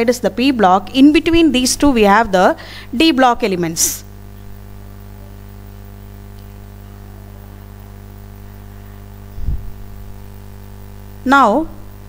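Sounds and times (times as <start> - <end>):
electrical mains hum: 0.0 - 12.0
low thump: 9.4 - 9.7.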